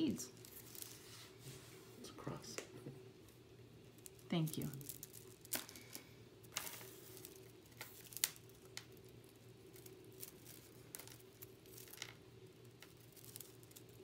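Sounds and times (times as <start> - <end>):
low steady hum: 0.0 - 14.0
beads and chain clicking: 4.0 - 12.2, 12.8 - 14.0.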